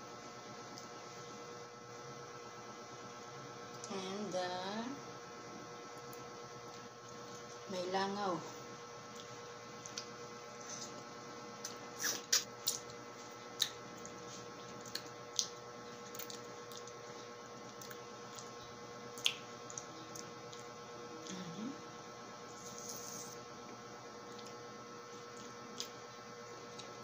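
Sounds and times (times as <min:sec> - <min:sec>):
electrical hum: 0:00.0 - 0:27.0
mouth sucking and biting lemon: 0:12.0 - 0:12.5.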